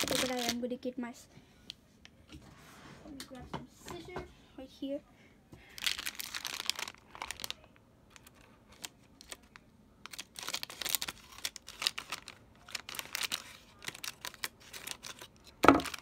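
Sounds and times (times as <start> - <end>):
plastic bag crackling: 0.0 - 0.6, 5.8 - 16.0.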